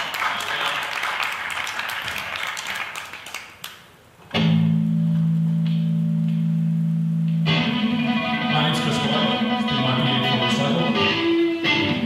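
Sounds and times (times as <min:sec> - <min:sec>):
audience applause: 0:00.0 - 0:03.9
electric guitar and bass chord: 0:04.4 - 0:12.0.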